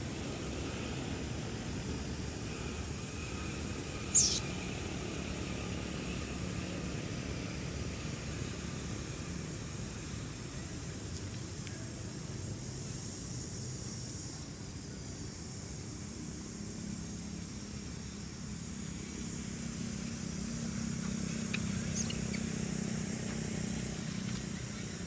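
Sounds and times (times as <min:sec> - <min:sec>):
low engine-like hum: 0:00.0 - 0:25.0
faint high hiss: 0:00.1 - 0:04.7.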